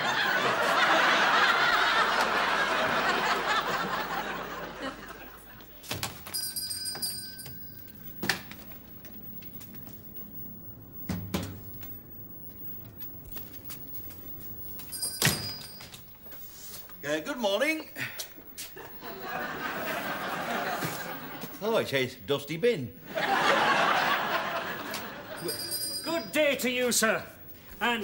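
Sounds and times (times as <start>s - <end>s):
audience laughing: 0.0s - 5.8s, 18.0s - 21.6s, 23.0s - 25.6s
shop door bell jingling: 6.0s - 17.8s, 25.1s - 28.0s.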